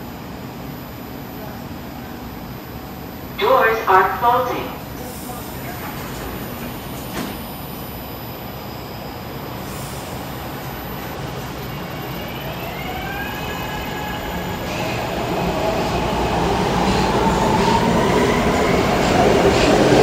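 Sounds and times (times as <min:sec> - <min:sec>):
train hum: 0:00.0 - 0:20.0
train doors closing knock: 0:07.1 - 0:07.4.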